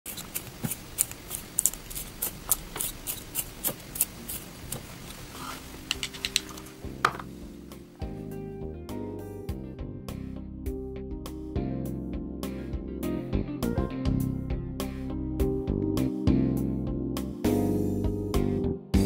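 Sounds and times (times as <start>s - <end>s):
pencil sharpener clicks and scrapes: 0.1s - 7.3s
background music: 5.6s - 19.0s.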